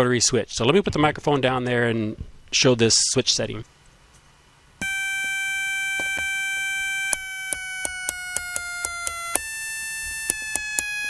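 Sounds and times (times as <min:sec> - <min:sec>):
buzzy beep tone: 0:04.8 - 0:11.0
rotary switch clicks: 0:07.1 - 0:09.5, 0:10.2 - 0:11.0.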